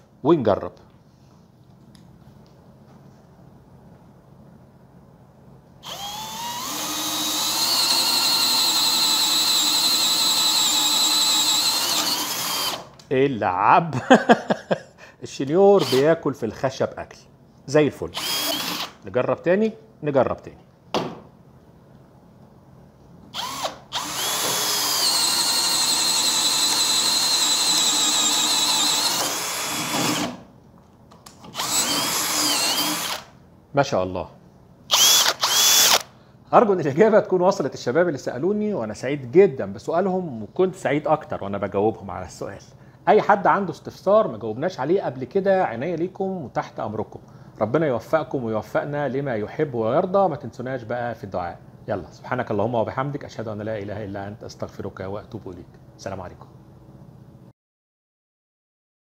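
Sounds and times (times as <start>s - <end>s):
drill boring into wood: 5.8s - 12.9s, 15.8s - 16.1s, 18.1s - 19.0s, 23.4s - 30.4s, 31.5s - 33.3s, 34.9s - 36.1s
drill trigger blip: 34.9s - 36.1s.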